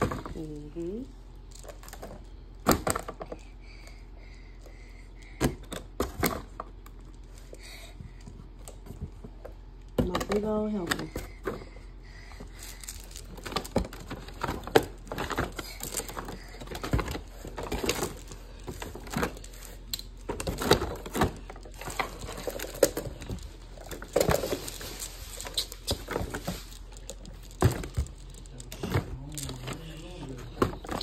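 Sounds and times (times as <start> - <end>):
plastic crinkling: 12.5 - 31.0.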